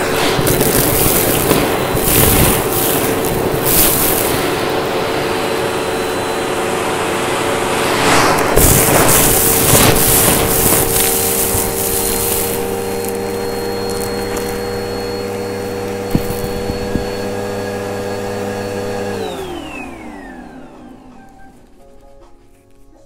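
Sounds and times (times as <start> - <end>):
debris rattling in hose: 0.0 - 5.7, 8.4 - 17.2
vacuum motor winding down: 0.0 - 21.8
vacuum cleaner running: 0.0 - 22.2.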